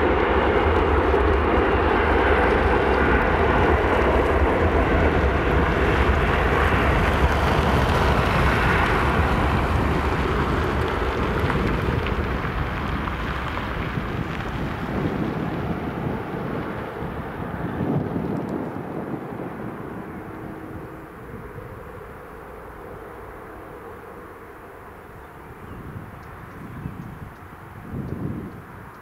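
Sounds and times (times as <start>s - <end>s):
jet engines at takeoff: 0.0s - 29.0s.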